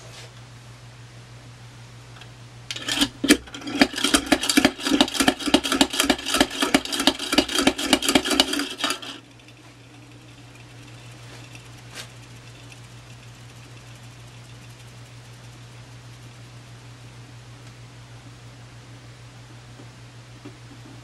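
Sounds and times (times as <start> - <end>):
spinning top plunger clatter: 2.7 - 16.9.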